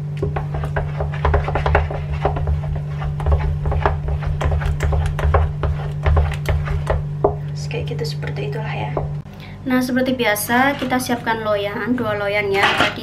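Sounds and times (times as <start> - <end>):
steady low hum: 0.0 - 13.0
spatula scraping a pan: 0.2 - 7.2, 10.4 - 11.4, 12.5 - 13.0
dough thumping against pan: 0.2 - 7.5.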